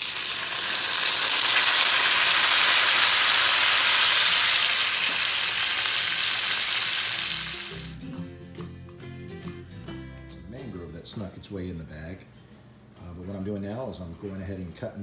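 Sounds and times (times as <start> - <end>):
beans sizzling in hot fat: 0.0 - 8.0.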